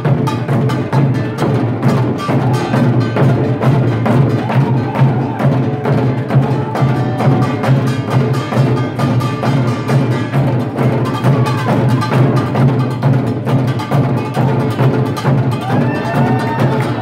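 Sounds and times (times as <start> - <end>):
barrel drums beaten in unison: 0.0 - 17.0.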